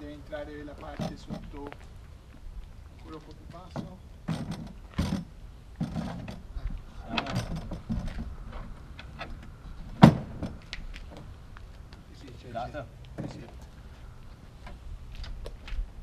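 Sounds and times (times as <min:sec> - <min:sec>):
metallic clunks on trailer ramp: 0:03.6 - 0:06.5, 0:07.1 - 0:11.3.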